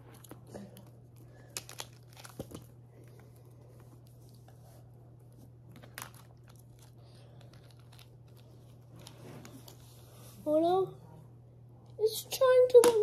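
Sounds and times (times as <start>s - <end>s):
plastic figures rustling: 5.7s - 10.2s.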